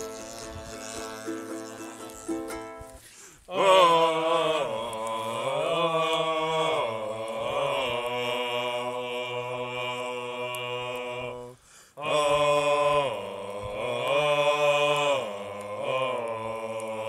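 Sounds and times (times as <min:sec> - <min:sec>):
plucked ukulele notes: 0:00.0 - 0:03.0
men chanting in low tones: 0:03.5 - 0:17.0.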